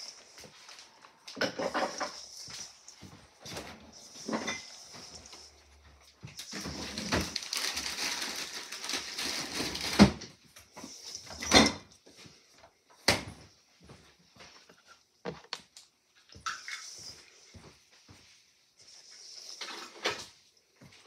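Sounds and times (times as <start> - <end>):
filling stirred in metal bowl: 0.0 - 6.8.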